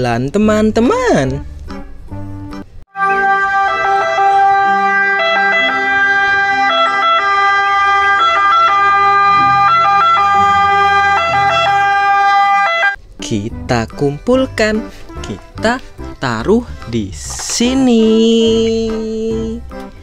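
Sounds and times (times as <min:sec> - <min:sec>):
ambulance siren: 0:02.9 - 0:13.0.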